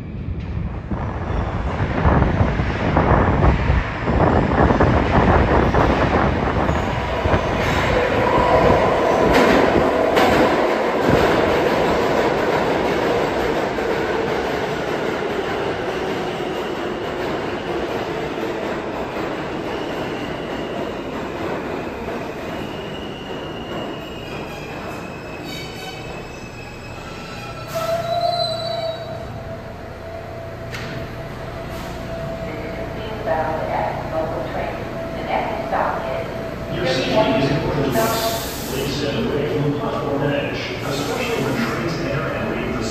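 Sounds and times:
high wheel squeal: 0:22.3 - 0:29.3.

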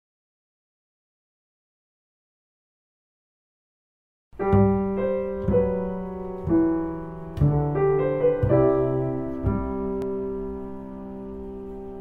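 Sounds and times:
slow piano chords: 0:04.4 - 0:12.0.

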